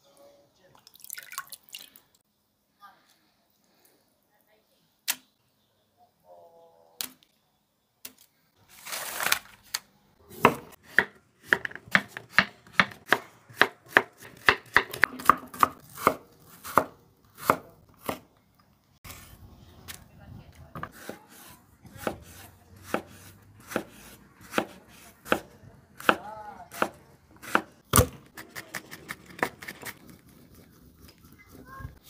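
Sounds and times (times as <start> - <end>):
knife chopping on wooden board: 10.3 - 18.2, 20.8 - 29.9.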